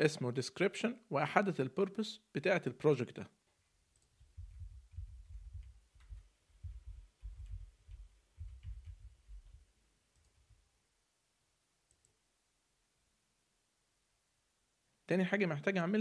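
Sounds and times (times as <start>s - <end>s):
computer keyboard typing: 3.9s - 10.6s
faint clicks: 11.9s - 12.2s.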